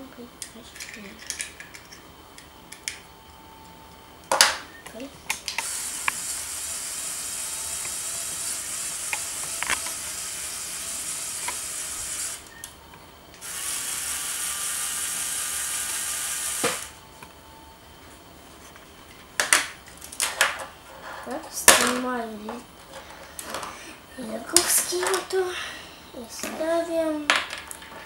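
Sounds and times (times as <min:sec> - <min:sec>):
motor click: 0:05.4 - 0:06.6
toy motor whirring through gears: 0:05.5 - 0:12.6, 0:13.4 - 0:17.0.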